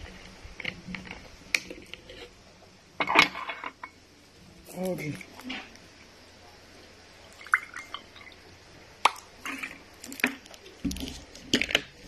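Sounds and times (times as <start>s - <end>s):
drink dripping and splashing: 7.3s - 10.3s.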